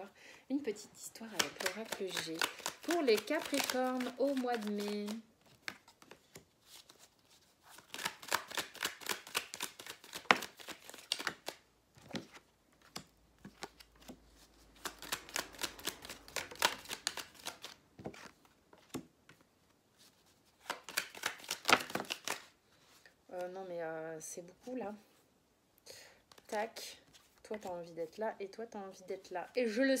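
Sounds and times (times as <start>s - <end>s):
cards being shuffled: 1.2s - 23.5s.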